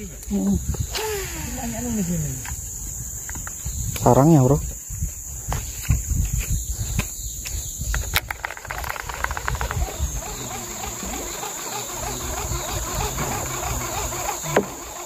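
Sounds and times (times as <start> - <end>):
insects droning: 0.0 - 15.0
quick run of ticks: 5.5 - 15.0.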